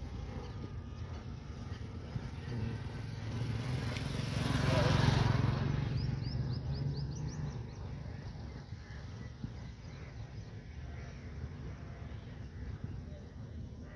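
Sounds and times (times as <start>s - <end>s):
faint outdoor background noise: 0.0s - 13.9s
vehicle engine hum: 0.0s - 13.9s
bird chirping: 5.5s - 13.4s.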